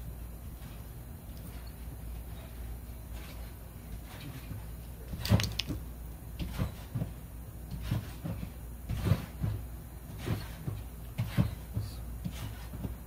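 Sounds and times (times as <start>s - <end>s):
low steady hum: 0.0s - 13.0s
tape handling clicks and rustles: 5.2s - 5.8s.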